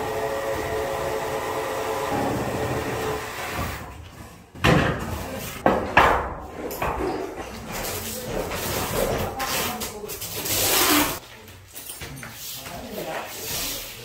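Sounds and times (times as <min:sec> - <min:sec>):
sharp knocks and bangs: 0:04.6 - 0:07.0.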